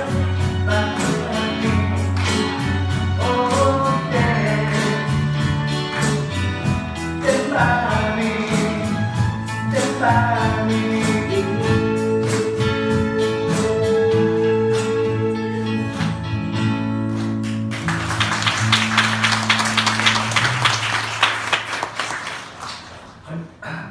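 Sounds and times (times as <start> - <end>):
audience applause: 17.1 - 23.2.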